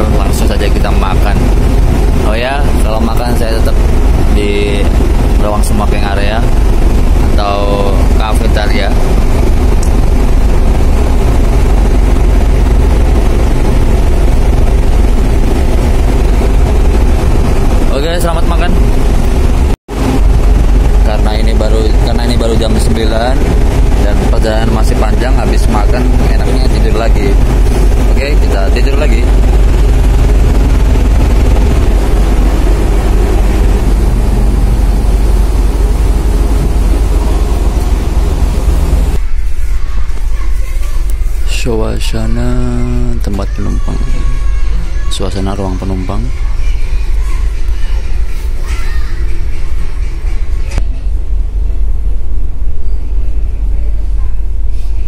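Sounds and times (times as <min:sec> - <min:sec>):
wind buffeting microphone: 0:00.0 - 0:40.4
even rushing noise: 0:00.0 - 0:55.0
ship engines droning: 0:00.0 - 0:55.0.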